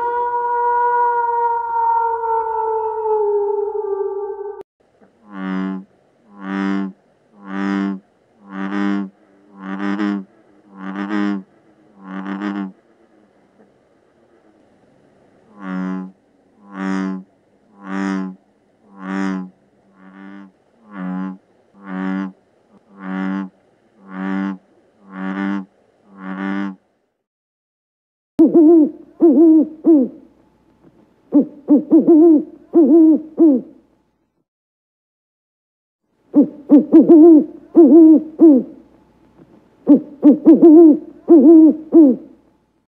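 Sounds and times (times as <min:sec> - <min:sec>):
bullfrog croaking: 0:05.2 - 0:13.2, 0:15.5 - 0:26.8
owl hooting: 0:28.4 - 0:30.2, 0:31.3 - 0:33.8, 0:36.3 - 0:38.8, 0:39.8 - 0:42.4.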